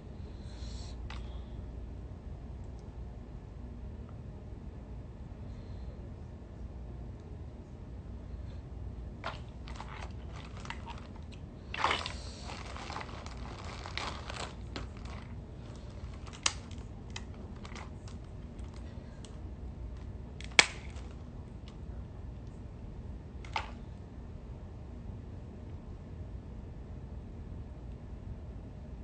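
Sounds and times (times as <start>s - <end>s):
crab shells cracking: 9.2s - 18.9s, 20.4s - 21.2s.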